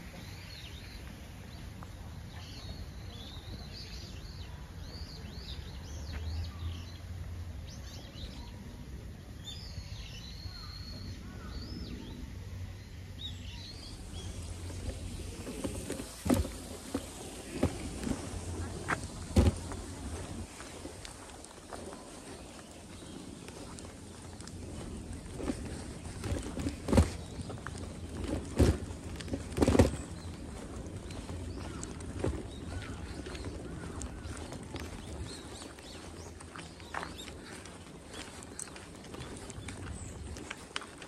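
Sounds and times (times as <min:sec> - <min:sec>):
footsteps on path: 0:00.0 - 0:07.0, 0:13.3 - 0:41.0
low outdoor rumble: 0:00.0 - 0:41.0
small birds chirping: 0:00.0 - 0:41.0.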